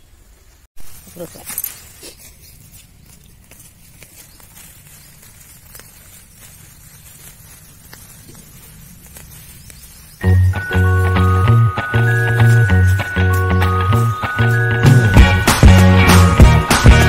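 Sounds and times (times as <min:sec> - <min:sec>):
hand rustling through leaves: 0:00.8 - 0:15.1
music: 0:10.2 - 0:17.0.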